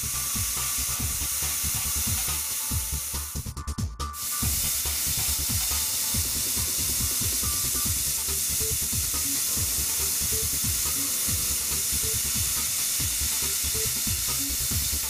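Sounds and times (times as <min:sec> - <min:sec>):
end mill milling metal: 0:04.2 - 0:15.0.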